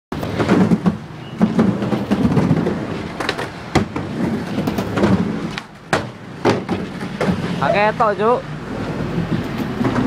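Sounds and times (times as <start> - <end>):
skateboard wheels rolling: 0.1 - 8.0, 8.6 - 10.0
skateboard clacking on ramp: 0.2 - 7.6.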